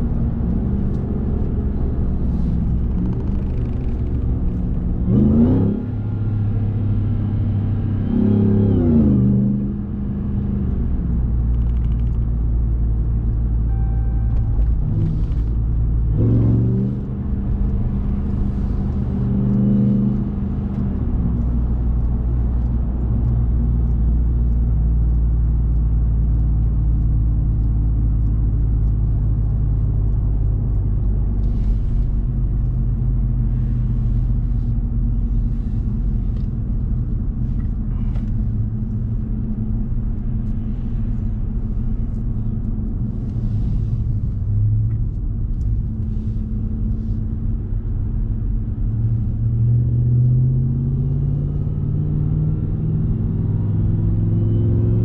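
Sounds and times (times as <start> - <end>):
truck engine accelerating: 0.0 - 55.0
short beep: 13.6 - 15.3.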